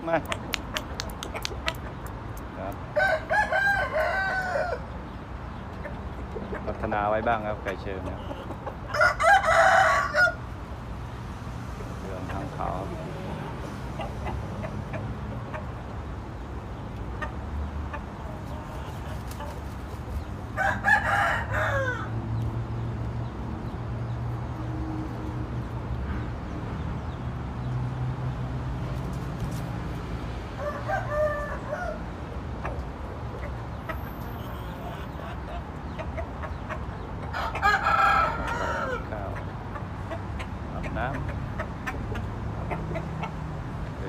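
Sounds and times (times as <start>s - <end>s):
roosters crowing: 2.9s - 5.1s, 8.0s - 10.8s, 18.2s - 22.4s, 30.5s - 32.7s, 33.5s - 39.4s.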